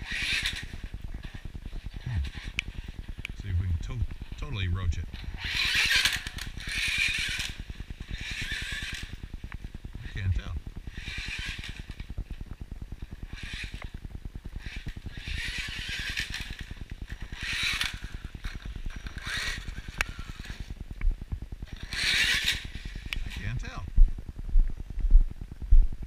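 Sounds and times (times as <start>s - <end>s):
rc car motor and tyre hiss: 0.0s - 3.4s, 5.2s - 12.4s, 13.0s - 14.0s, 14.6s - 20.8s, 21.7s - 23.8s
fast steady ticking: 0.0s - 25.6s.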